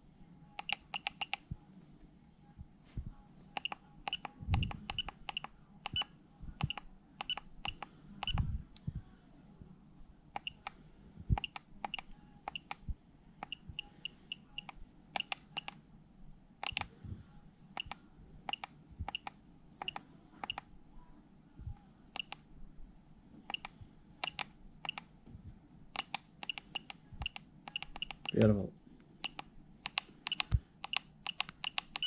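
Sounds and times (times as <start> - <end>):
push-button clicks: 29.2 - 32.0.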